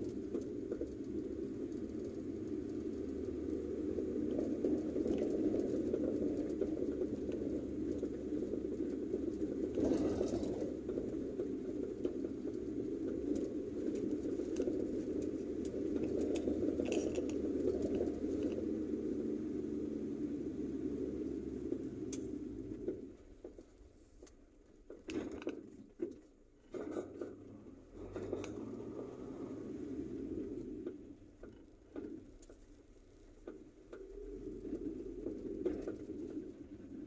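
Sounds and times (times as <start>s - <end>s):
car engine and tyre rumble: 0.0s - 37.0s
faint clicks: 20.6s - 37.0s.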